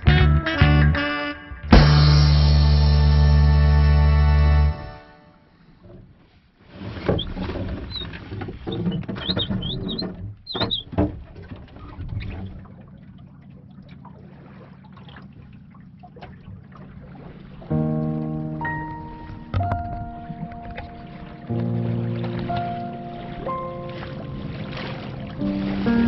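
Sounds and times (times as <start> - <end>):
water lapping against a hull: 4.9 - 26.0
short high squeaks: 7.1 - 11.0.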